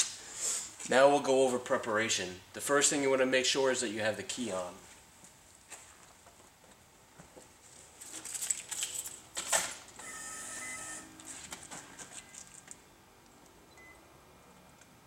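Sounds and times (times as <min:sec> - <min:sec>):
car keys jangling: 0:08.1 - 0:09.4
car electronic tone: 0:10.1 - 0:11.2.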